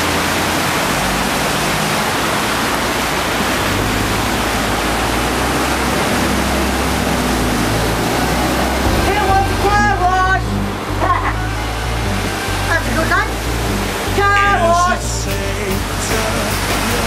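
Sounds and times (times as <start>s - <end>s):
floodwater rushing: 0.0s - 17.0s
vehicle engine hum: 0.0s - 17.0s.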